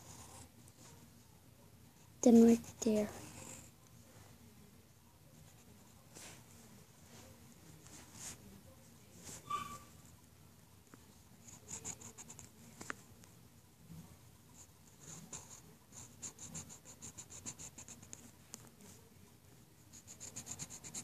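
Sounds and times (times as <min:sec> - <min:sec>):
brief squeak: 0:09.4 - 0:09.9
pencil scratching on paper: 0:11.4 - 0:12.5, 0:14.6 - 0:18.3, 0:19.9 - 0:21.0.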